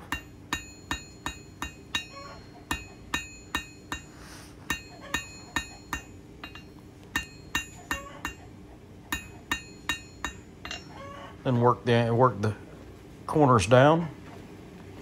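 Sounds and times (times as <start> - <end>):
metallic ring of anvil: 0.0 - 8.5, 9.1 - 11.2
hammer striking steel on anvil: 0.0 - 11.1.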